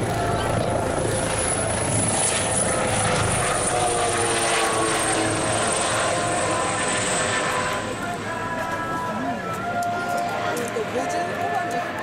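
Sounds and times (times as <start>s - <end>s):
helicopter rotor and engine: 0.0s - 12.0s.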